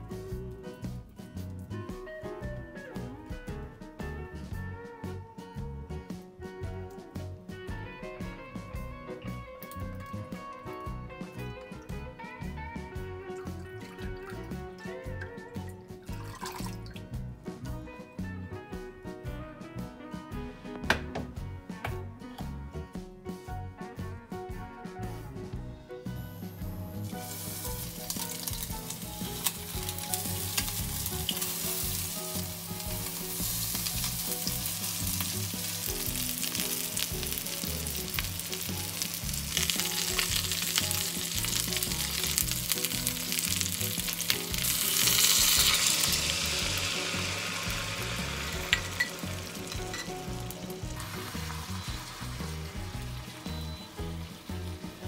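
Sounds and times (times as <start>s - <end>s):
food sizzling in oil: 26.4s - 55.0s.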